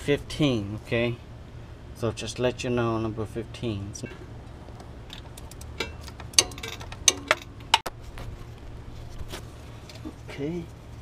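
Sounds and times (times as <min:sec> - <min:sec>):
wrench clicking on metal: 0:05.2 - 0:07.8.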